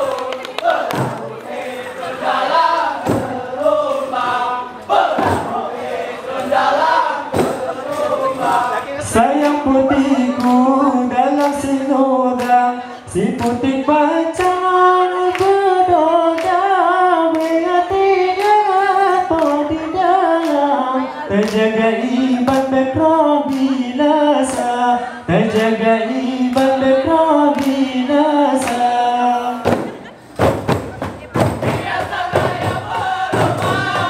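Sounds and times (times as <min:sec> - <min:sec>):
hand clapping: 0:00.0 - 0:01.5, 0:09.4 - 0:10.7, 0:11.3 - 0:11.8, 0:12.4 - 0:12.6, 0:13.3 - 0:13.6, 0:15.3 - 0:15.6, 0:16.3 - 0:16.6, 0:17.3 - 0:17.6, 0:18.4 - 0:18.6, 0:19.3 - 0:19.7, 0:21.4 - 0:21.6, 0:23.5 - 0:23.8, 0:26.5 - 0:26.8, 0:27.5 - 0:27.8, 0:28.6 - 0:28.9
person singing unaccompanied: 0:00.0 - 0:30.1, 0:31.6 - 0:34.0.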